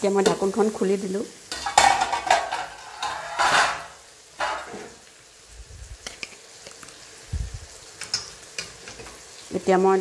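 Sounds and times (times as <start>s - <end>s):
meat sizzling: 0.0s - 10.0s
spatula scraping a pan: 1.5s - 5.0s.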